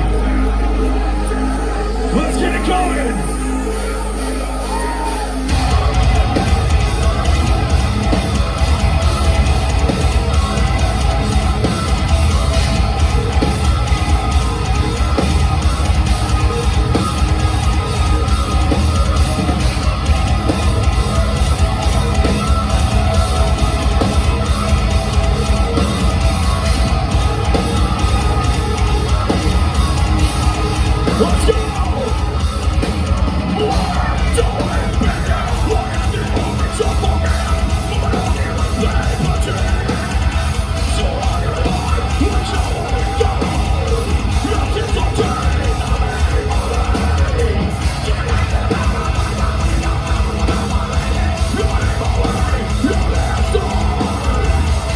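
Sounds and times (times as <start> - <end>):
metal band playing live: 0.0 - 54.9
screamed vocals: 4.3 - 5.7.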